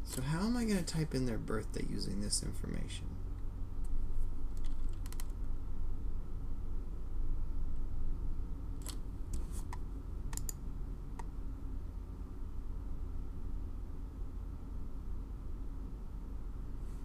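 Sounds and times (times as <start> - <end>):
steady low hum: 0.0 - 17.0
keyboard and mouse clicks: 4.5 - 5.4, 8.8 - 10.6.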